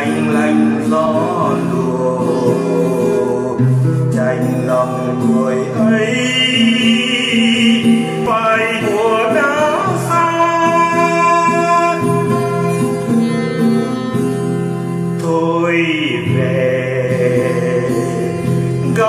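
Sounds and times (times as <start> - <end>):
man singing: 0.0 - 13.8, 15.1 - 19.0
acoustic guitar: 0.0 - 19.0.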